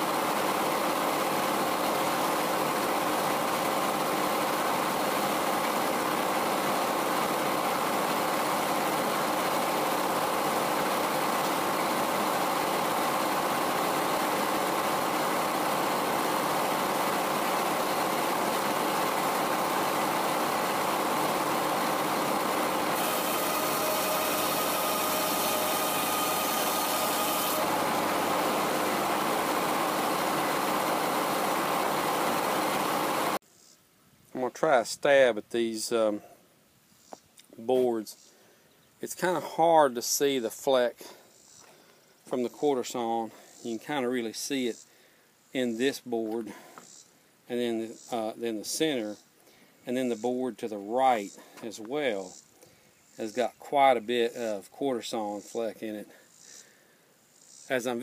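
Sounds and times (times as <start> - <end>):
circular sawmill drone: 0.0 - 33.4
saw blade cutting wood: 20.8 - 31.6.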